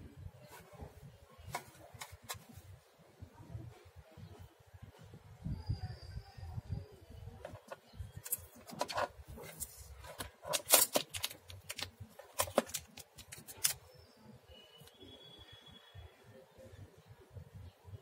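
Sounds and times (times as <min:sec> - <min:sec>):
plastic film crackling: 0:08.2 - 0:13.8.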